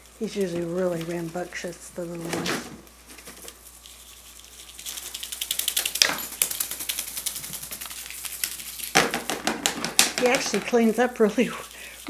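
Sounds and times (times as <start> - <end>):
kittens scratching cardboard: 0.0 - 12.0.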